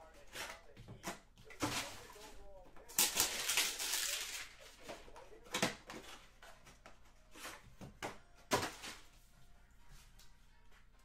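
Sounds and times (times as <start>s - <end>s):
wrapping rustling: 1.7s - 4.9s.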